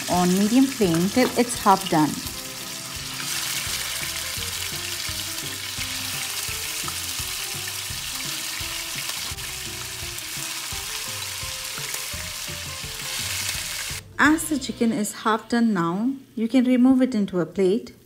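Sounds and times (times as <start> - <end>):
chicken sizzling in hot oil: 0.0 - 14.0.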